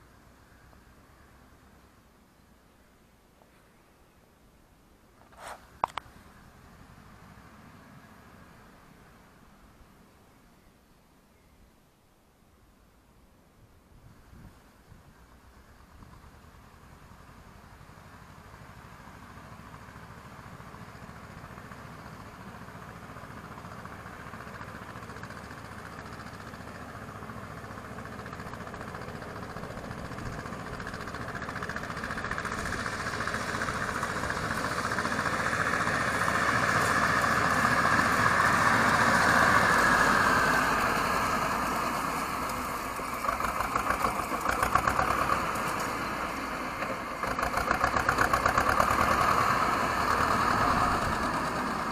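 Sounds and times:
small tractor engine running: 15.8 - 51.9.

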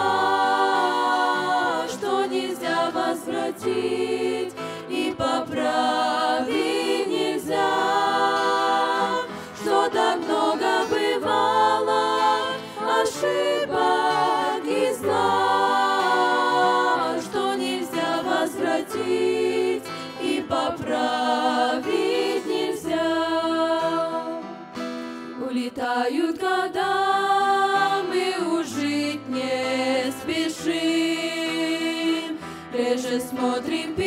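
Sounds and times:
girls singing in close harmony: 0.0 - 24.5, 25.4 - 34.0.

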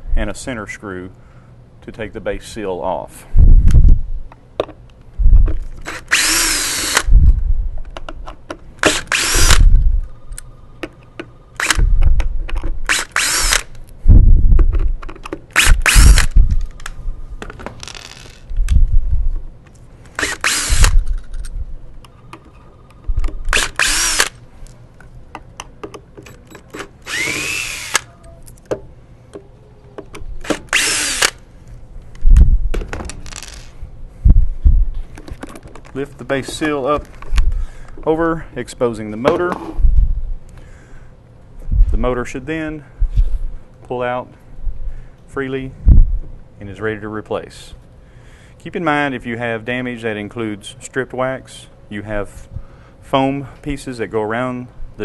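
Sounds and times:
cordless drill whining: 5.8 - 7.1, 8.8 - 9.7, 12.9 - 13.6, 15.6 - 16.4, 20.2 - 21.0, 23.5 - 24.4, 27.0 - 28.1, 30.5 - 31.4.

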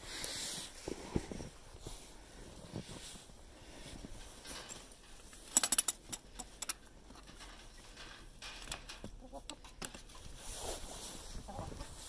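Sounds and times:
hens clucking softly: 9.2 - 10.2, 11.2 - 12.0.

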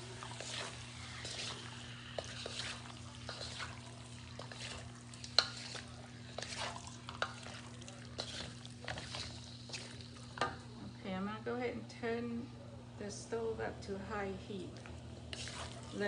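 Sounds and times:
wooden spatulas scraping wok: 0.0 - 10.8, 15.2 - 16.0.

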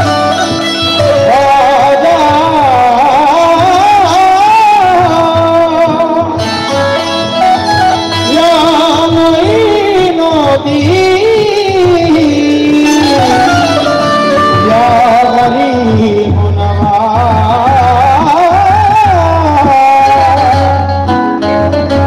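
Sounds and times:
harmonium drone: 0.0 - 19.1
hand drum beat: 0.0 - 22.0
sliding vocal melody: 7.4 - 20.8.

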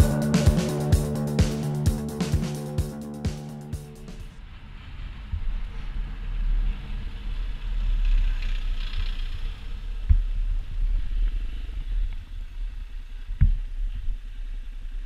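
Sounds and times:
motorcycle engine running: 0.0 - 4.3.

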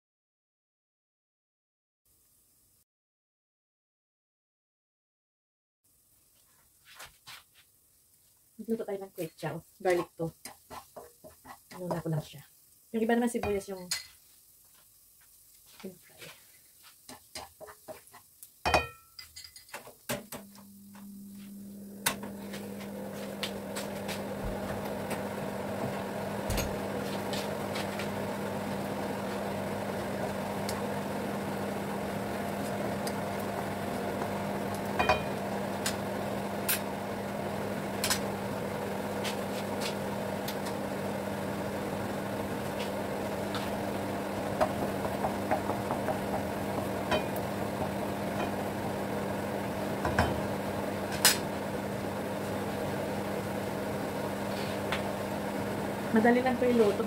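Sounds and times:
garlic sizzling in a wok: 7.7 - 57.0
spatula tapping and scraping pan: 9.9 - 12.0, 17.1 - 19.9, 44.6 - 46.5
low hum: 20.4 - 39.1.

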